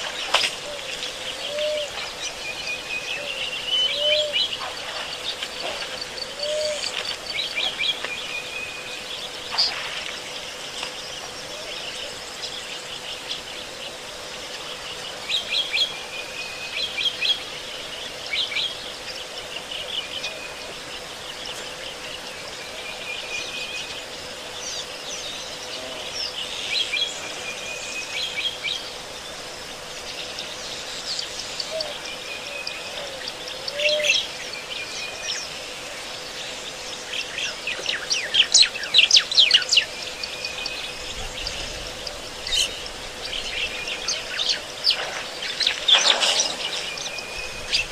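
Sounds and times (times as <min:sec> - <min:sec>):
birds chirping: 0:00.0 - 0:47.9.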